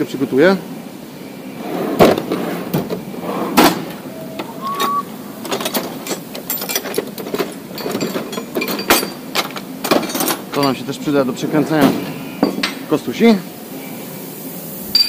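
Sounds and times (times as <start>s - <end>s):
brief high tone: 4.0s - 5.2s
metal tools clinking and knocking: 4.2s - 11.0s.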